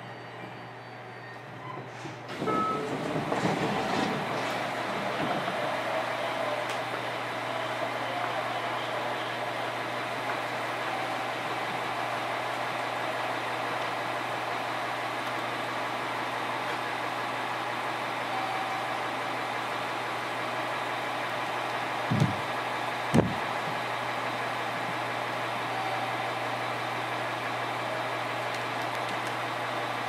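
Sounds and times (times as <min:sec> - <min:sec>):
train wheels rumbling on rail: 0:01.5 - 0:25.6.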